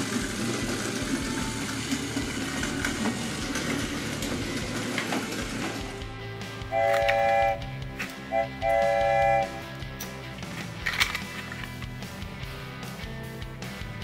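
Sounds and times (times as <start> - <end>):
toy train motor whirring: 6.8 - 7.6.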